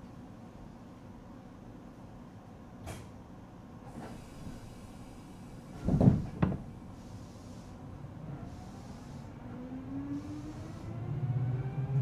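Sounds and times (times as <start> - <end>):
electric train motor whine: 7.3 - 12.0.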